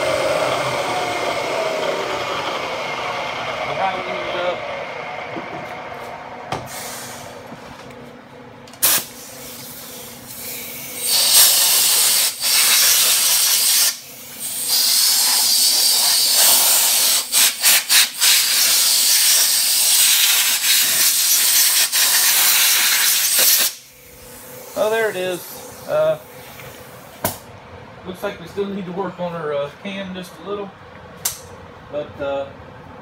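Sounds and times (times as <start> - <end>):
short air puffs: 6.6 - 7.5, 8.8 - 27.1
compressed air blasts hissing: 8.8 - 26.5.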